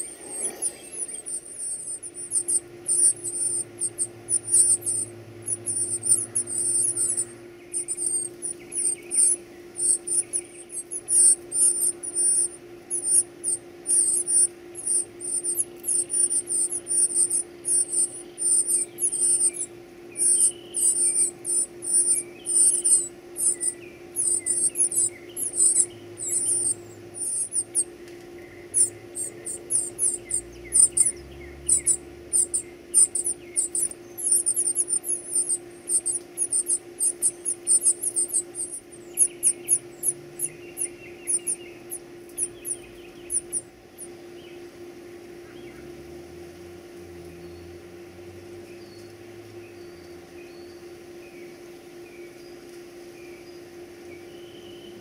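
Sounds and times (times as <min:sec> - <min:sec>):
nestlings squeaking: 0:00.0 - 0:28.0, 0:28.7 - 0:44.1.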